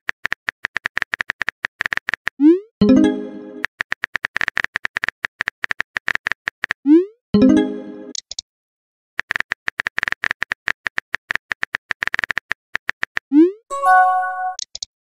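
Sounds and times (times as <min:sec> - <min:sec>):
message chime: 0:02.8 - 0:03.6, 0:07.4 - 0:08.1, 0:13.7 - 0:14.6
short multi-tone chime: 0:13.7 - 0:14.6.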